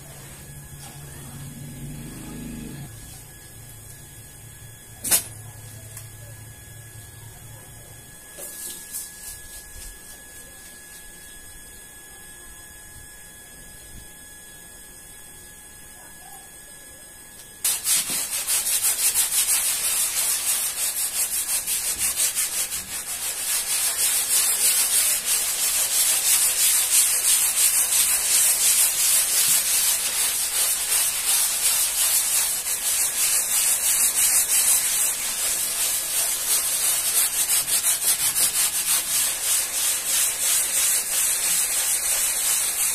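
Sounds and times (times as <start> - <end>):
scrub brush scrubbing rug: 17.6 - 42.9.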